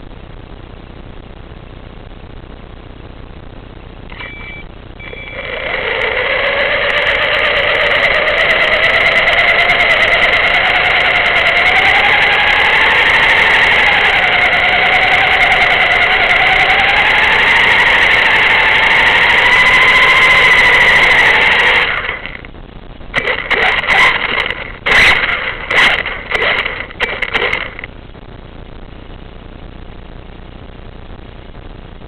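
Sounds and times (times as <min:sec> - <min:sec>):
small motor whining: 0:04.1 - 0:22.4, 0:23.2 - 0:27.9.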